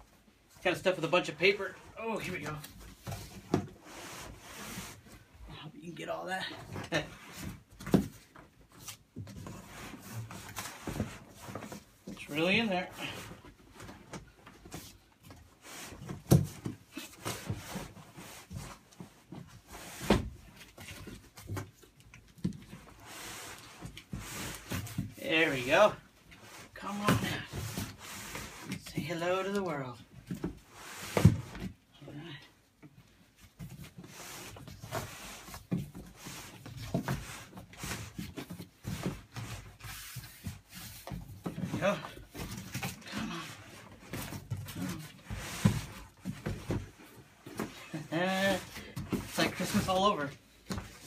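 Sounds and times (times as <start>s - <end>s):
cardboard boxes scraping and knocking: 1.5s - 5.4s, 6.4s - 51.0s
cardboard scraping and rustling: 33.4s - 51.0s
boxes knocking and bumping: 33.6s - 51.0s.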